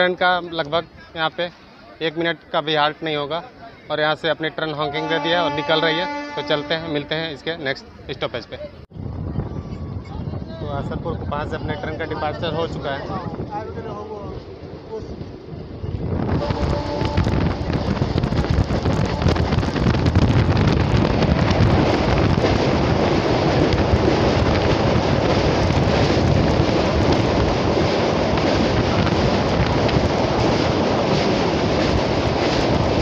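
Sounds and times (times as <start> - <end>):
train running over bridge: 4.0 - 33.0
wind buffeting microphone: 8.9 - 33.0.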